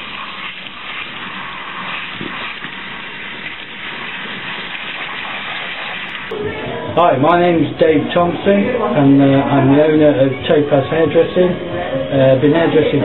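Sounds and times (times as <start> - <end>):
water spraying through wet hair: 0.0 - 6.3.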